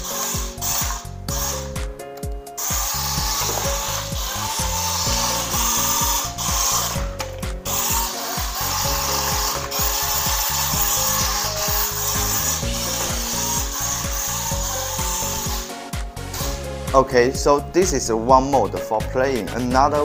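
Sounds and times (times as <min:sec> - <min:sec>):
wheels rubbing table: 0:00.0 - 0:01.7, 0:02.5 - 0:16.7
toy car motors whirring: 0:00.0 - 0:01.8, 0:02.6 - 0:15.7, 0:16.3 - 0:16.6.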